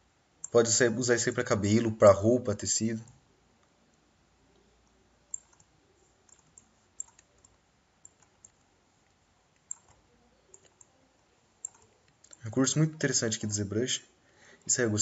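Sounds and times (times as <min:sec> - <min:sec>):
room hiss: 0:00.0 - 0:15.0
computer mouse clicks: 0:03.6 - 0:12.5.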